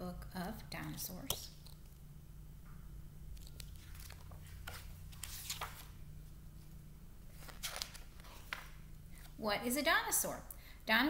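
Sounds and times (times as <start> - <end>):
low steady hum: 0.0 - 11.0
book pages rustling: 3.4 - 6.0, 7.3 - 9.4.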